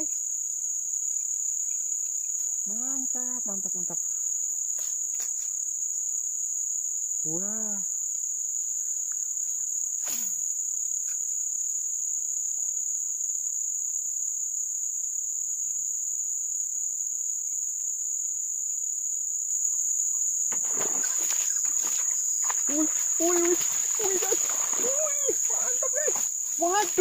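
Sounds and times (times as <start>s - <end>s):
insects chirping: 0.0s - 27.0s
rustling: 20.5s - 27.0s.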